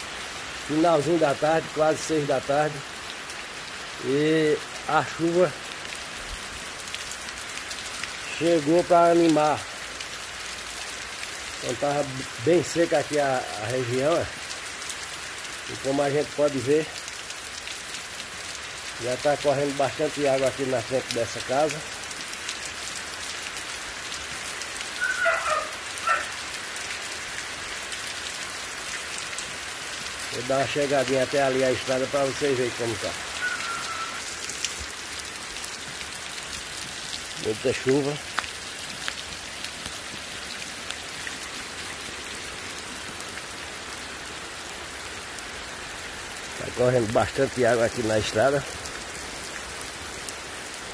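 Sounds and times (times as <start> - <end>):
heavy rain falling: 0.0 - 50.9
animal calling: 24.9 - 26.5, 33.1 - 34.6.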